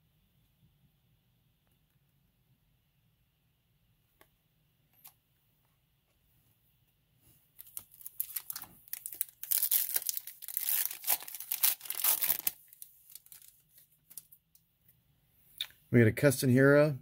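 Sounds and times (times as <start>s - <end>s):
foil wrapper tearing and crinkling: 7.6s - 14.3s.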